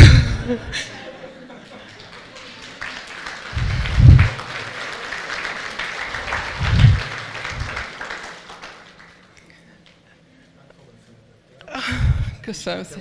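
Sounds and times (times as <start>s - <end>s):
dull deep thumps: 0.0s - 0.6s, 3.6s - 4.4s, 6.5s - 7.8s
audience applauding: 1.6s - 10.0s.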